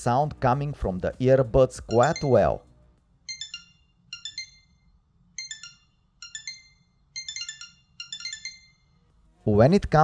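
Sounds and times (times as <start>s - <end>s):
high-pitched earbud alarm beeps: 1.9s - 2.6s, 3.3s - 9.0s.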